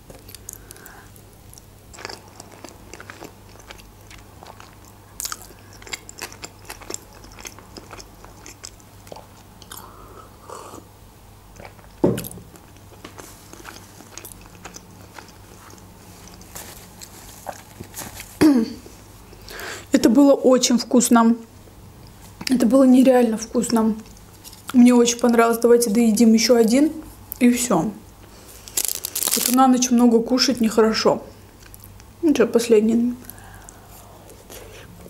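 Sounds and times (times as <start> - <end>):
close-miked chewing: 0.1 - 10.8, 11.5 - 18.0.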